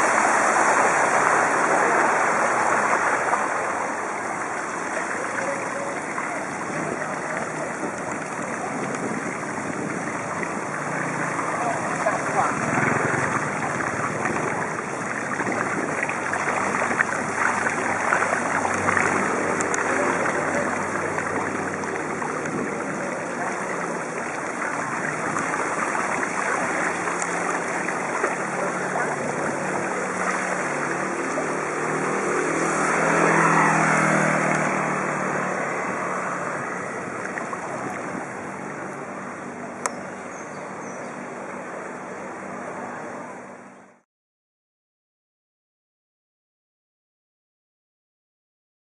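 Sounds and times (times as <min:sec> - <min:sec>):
motor vehicle passing: 0:00.0 - 0:40.3
water washing: 0:00.0 - 0:43.2
wind noise on microphone: 0:05.9 - 0:31.3, 0:35.6 - 0:40.2.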